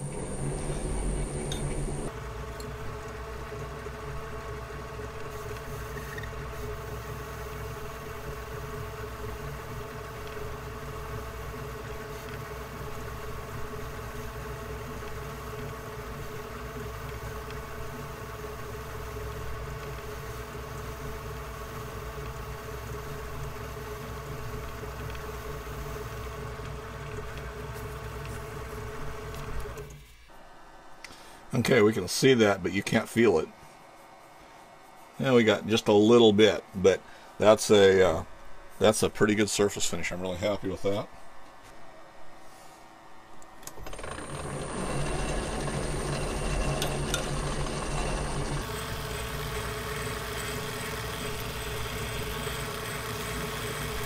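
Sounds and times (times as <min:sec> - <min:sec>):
metal lathe humming: 0:00.0 - 0:29.9, 0:43.6 - 0:54.0.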